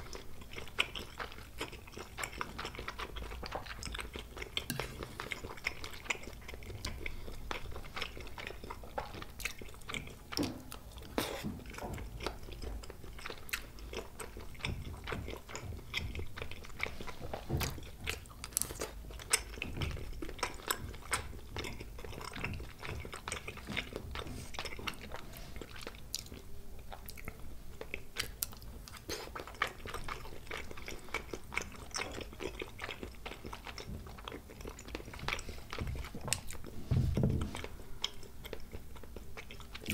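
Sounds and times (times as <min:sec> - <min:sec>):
close chewing and biting: 0:00.0 - 0:39.9.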